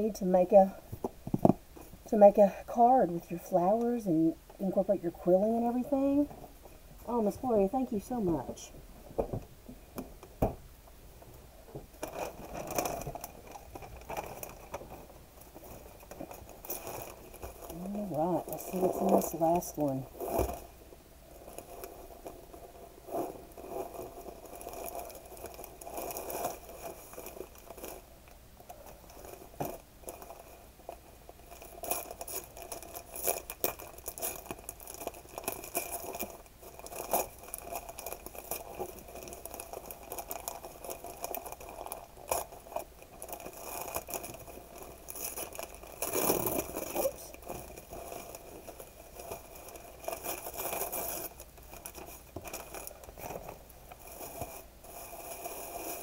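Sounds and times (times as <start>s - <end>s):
wrapping paper rustling: 11.9s - 56.0s.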